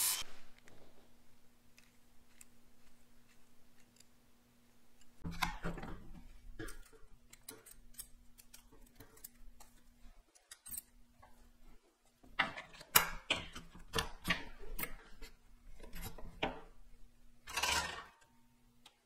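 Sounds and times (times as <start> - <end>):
light clicks and knocks of metal parts: 6.2 - 16.5.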